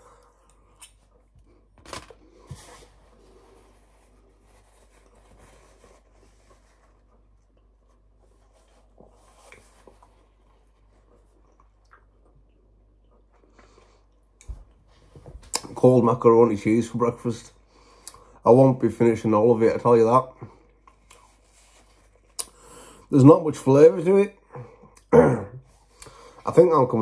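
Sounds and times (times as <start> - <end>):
low room hum: 0.0 - 27.0
tissue rustling: 2.2 - 11.2
faint chewing: 6.9 - 14.9, 20.7 - 22.6.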